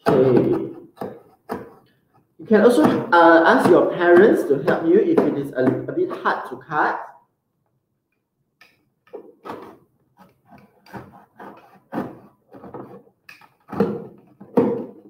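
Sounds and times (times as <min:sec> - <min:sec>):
knife cutting cardboard: 0:00.0 - 0:01.8, 0:09.4 - 0:14.4.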